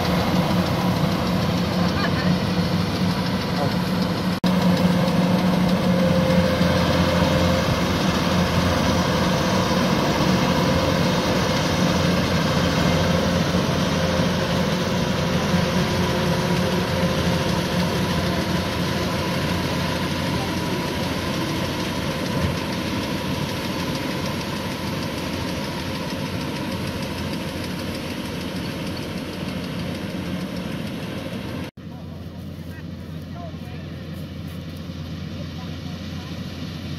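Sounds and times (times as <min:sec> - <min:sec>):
combine harvester running: 0:00.0 - 0:36.9.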